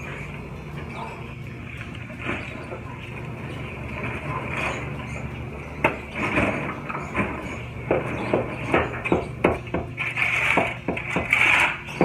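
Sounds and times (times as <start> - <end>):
shovel scraping concrete rubble: 10.0 - 12.0.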